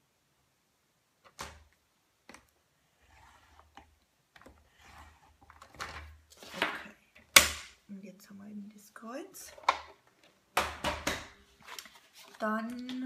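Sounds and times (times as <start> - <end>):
paper rustling: 11.4 - 12.9.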